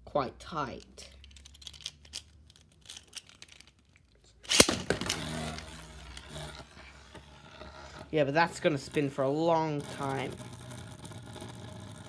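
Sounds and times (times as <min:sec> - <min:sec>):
spinning top launch snap: 0:04.4 - 0:06.4
spinning top whirring: 0:04.5 - 0:12.0.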